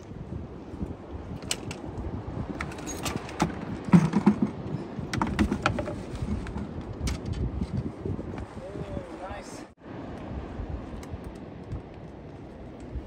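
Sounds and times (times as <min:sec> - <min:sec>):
fishing gear clicks and knocks: 0:01.3 - 0:07.9.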